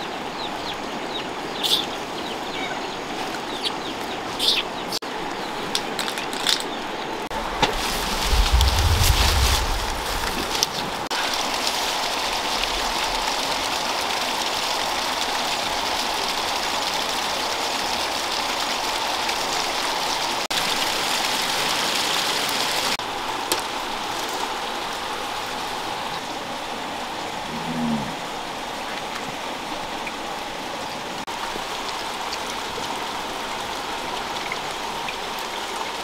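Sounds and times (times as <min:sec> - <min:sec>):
falling water hissing: 0:07.3 - 0:16.6.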